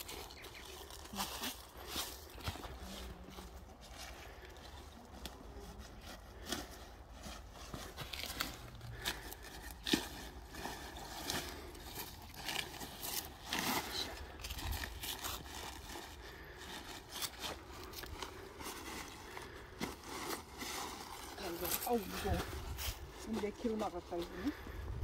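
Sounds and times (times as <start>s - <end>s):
cabbage leaves rustling and tearing: 0.0s - 24.7s.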